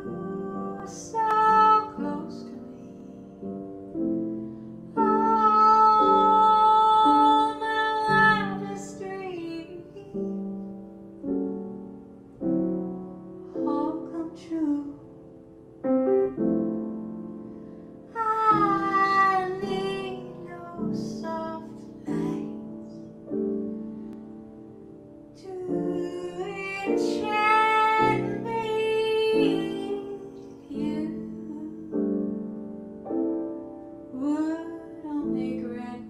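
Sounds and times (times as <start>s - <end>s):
woman singing: 0.0s - 3.5s, 4.9s - 10.7s, 13.5s - 15.2s, 18.1s - 23.0s, 25.4s - 32.3s, 34.1s - 36.0s
piano chords: 0.0s - 36.0s.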